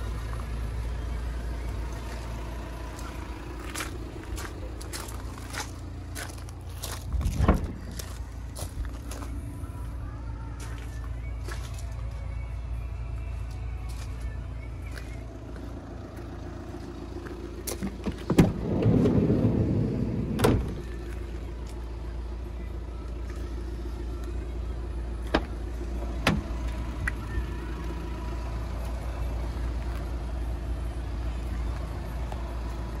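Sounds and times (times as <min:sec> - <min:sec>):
sliding door rumbling: 0:18.3 - 0:20.7
door latch clunk: 0:20.4 - 0:20.8.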